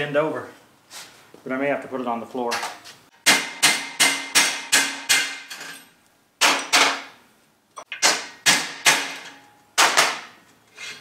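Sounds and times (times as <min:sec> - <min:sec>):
hammer striking steel punch: 0:03.2 - 0:05.6, 0:07.8 - 0:10.4.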